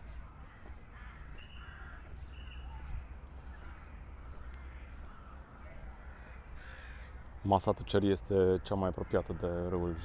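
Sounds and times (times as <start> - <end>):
steady low rumble: 0.0 - 7.4
birds calling: 0.0 - 10.0.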